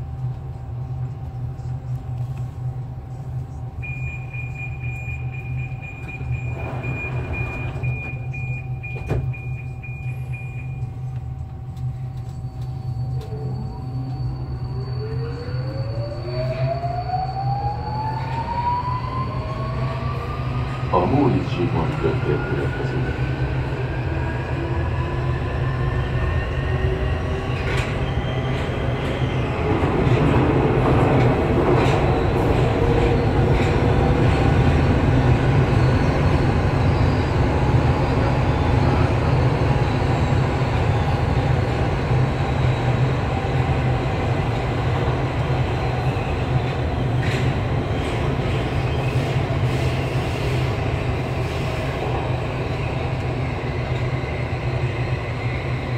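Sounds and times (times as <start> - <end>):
train wheels rumbling: 17.3 - 55.9.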